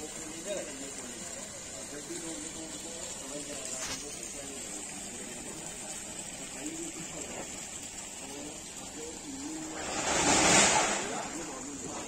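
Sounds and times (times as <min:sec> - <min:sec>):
water pouring into pond: 0:00.0 - 0:12.0
loud rush of noise: 0:09.6 - 0:12.0.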